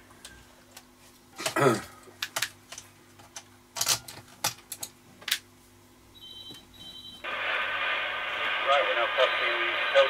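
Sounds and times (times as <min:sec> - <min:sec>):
hissy radio receive audio: 0:07.2 - 0:10.0.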